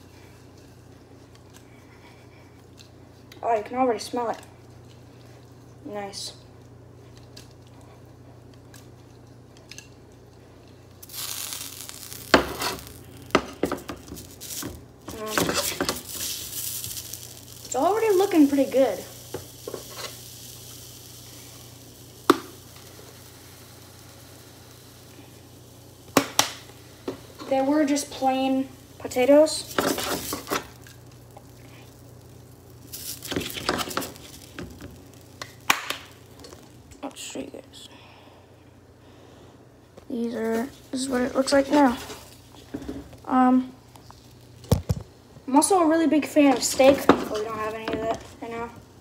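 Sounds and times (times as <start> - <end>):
potatoes sizzling in frying pan: 10.9 - 37.8, 40.1 - 49.0
utensil scraping a pan: 15.3 - 16.0.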